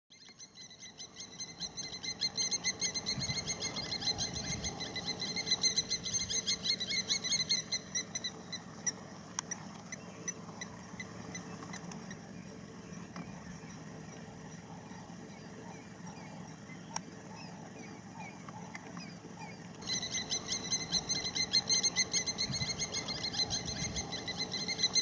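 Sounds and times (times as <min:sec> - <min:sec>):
animal chattering call: 0:19.8 - 0:25.0.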